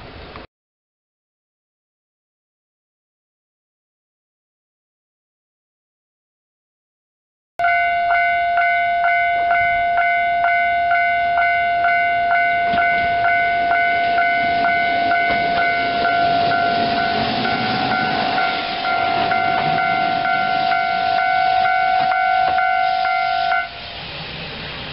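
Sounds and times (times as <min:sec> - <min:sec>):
diesel railcar engine and wheels: 0:00.0 - 0:00.5, 0:07.6 - 0:24.9
level crossing alarm ringing: 0:07.6 - 0:23.8.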